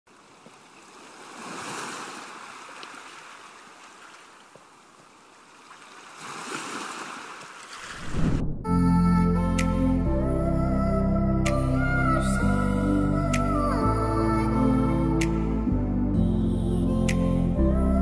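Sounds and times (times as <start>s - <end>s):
waves washing in and receding: 0.1s - 8.7s.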